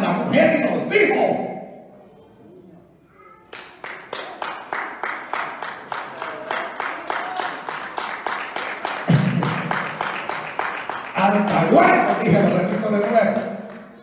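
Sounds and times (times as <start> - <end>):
hands clapping fast: 3.5 - 14.0.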